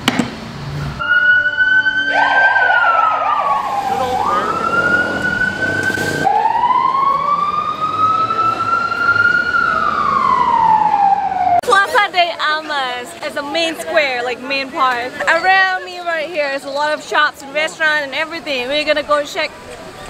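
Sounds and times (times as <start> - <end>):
fast warbling siren tone: 1.0 - 11.6
fire engine siren wailing: 1.0 - 11.6.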